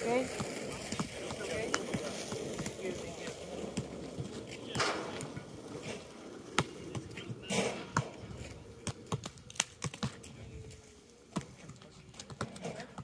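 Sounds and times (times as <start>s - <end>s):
players' footsteps: 0.0s - 13.0s
basketball bouncing on court: 0.1s - 5.3s, 6.5s - 8.2s, 8.8s - 10.2s.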